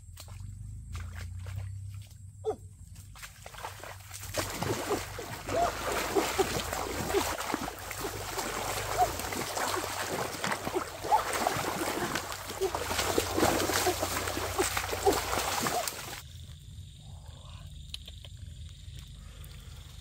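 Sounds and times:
water splashing and churning: 3.1s - 16.2s.

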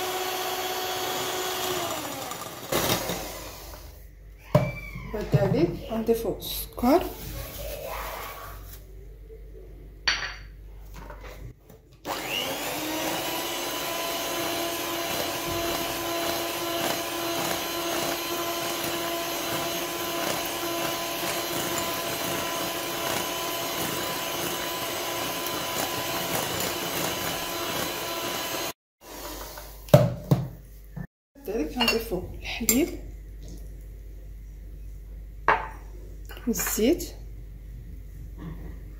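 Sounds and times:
electric hand mixer whine: 0.0s - 4.0s, 12.0s - 29.8s.

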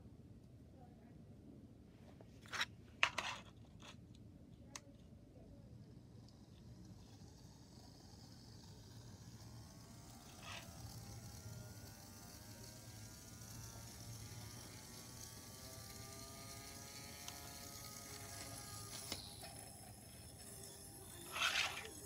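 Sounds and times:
gyroscope motor whirring: 5.7s - 22.0s
motor stopping click: 9.2s - 22.0s.

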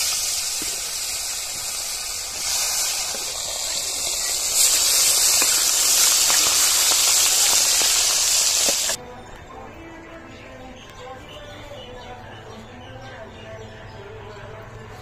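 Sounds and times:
fish sizzling in hot oil: 0.0s - 9.0s.

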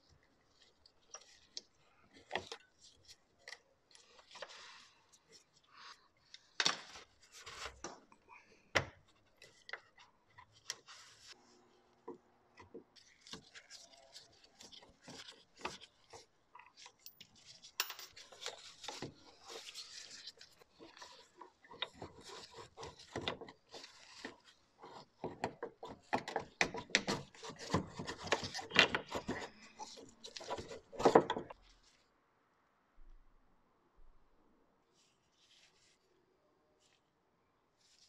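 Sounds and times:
screwdriver scraping and rubbing: 13.1s - 31.6s.

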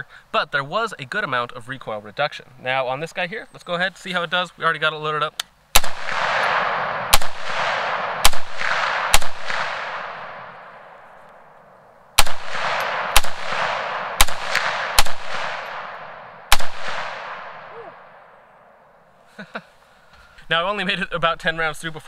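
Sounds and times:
rifle shots with echo: 5.7s - 11.6s, 12.2s - 18.7s.

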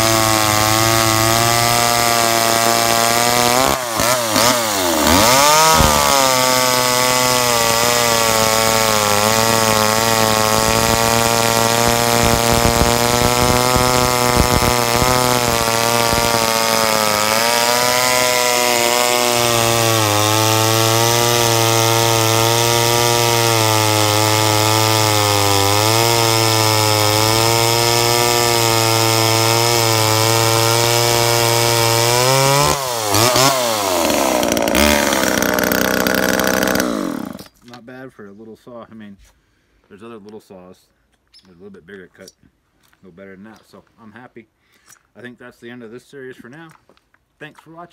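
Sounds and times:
chainsaw cutting log: 0.0s - 37.6s.

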